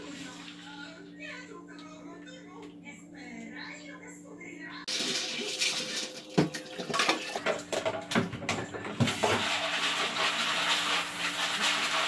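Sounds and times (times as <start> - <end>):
beans rattling in colander: 4.9 - 7.4, 9.1 - 12.0
tap water rushing into sink: 4.9 - 12.0.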